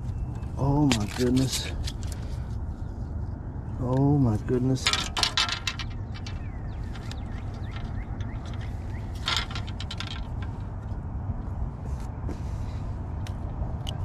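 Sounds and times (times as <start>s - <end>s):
fishing tackle clicks and rustle: 0.3s - 2.6s, 4.8s - 10.9s.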